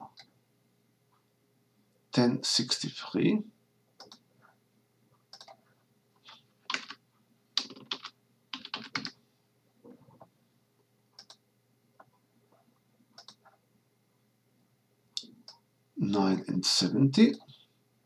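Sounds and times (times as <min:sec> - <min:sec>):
typing on computer keyboard: 0:06.7 - 0:07.0, 0:07.6 - 0:09.2, 0:13.2 - 0:13.5.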